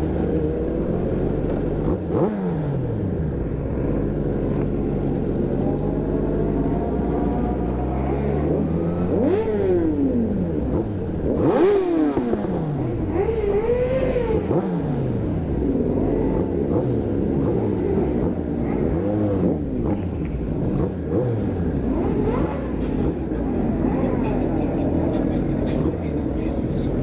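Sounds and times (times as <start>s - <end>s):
motorcycle engines revving: 0.0s - 27.0s.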